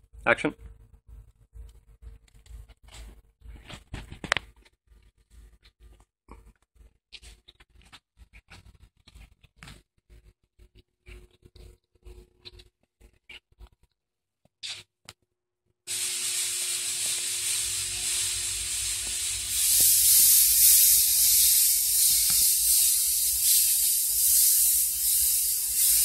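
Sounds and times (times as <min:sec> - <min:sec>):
steady hiss: 0:15.9 - 0:26.0.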